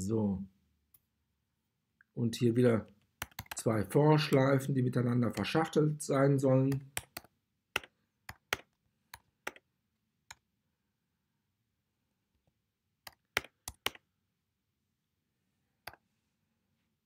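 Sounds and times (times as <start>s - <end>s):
keyboard keystrokes clicking: 3.2s - 3.6s, 6.7s - 9.6s, 13.1s - 14.0s.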